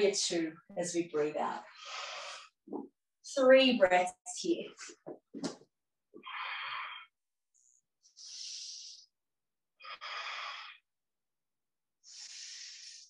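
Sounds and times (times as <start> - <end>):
person breathing deeply: 6.2 - 7.2, 8.0 - 9.2, 9.8 - 10.9, 12.0 - 13.0.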